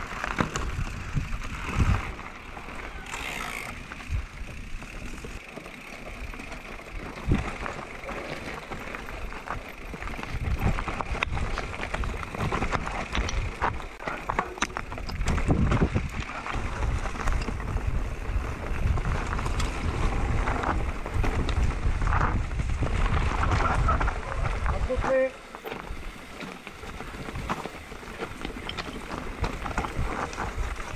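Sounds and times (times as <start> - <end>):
bike rattle and tyre noise: 0.0 - 30.9
wind buffeting microphone: 0.6 - 2.3, 6.9 - 8.0, 9.1 - 25.1.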